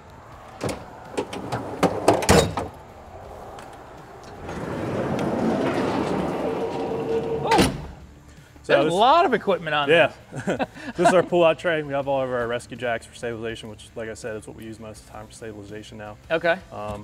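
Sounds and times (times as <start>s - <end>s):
compartment slide rolling: 0.6s - 2.8s, 3.6s - 7.9s.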